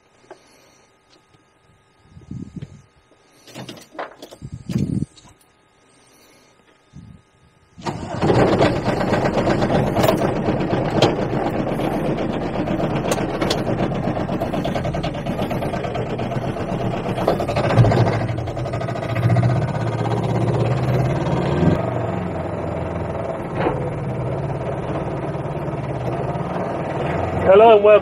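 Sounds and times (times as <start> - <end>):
diesel engine starting and running: 7.8 - 28.0.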